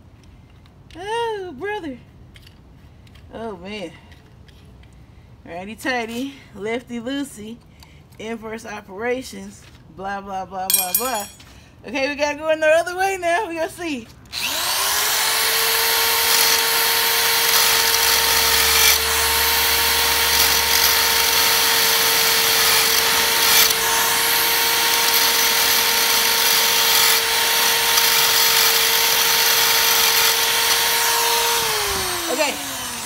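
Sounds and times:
electric drill whining: 14.3 - 33.0.

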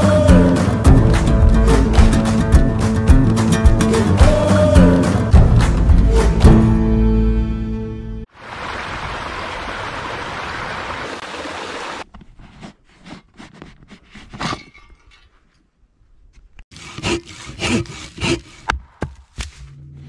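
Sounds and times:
small waterfall running: 8.3 - 12.0
pruning saw cutting log: 16.7 - 19.1.

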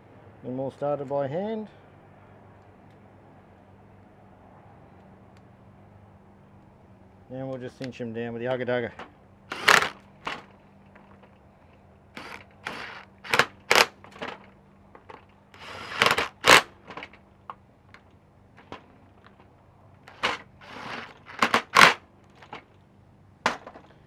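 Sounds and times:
impact driver hammering: 9.5 - 10.5, 12.2 - 14.4, 15.6 - 16.8, 20.1 - 22.0.

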